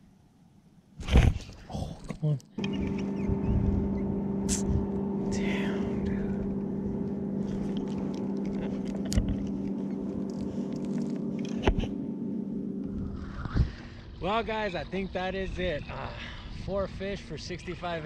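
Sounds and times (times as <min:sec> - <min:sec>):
electric motor humming: 0:02.6 - 0:14.6.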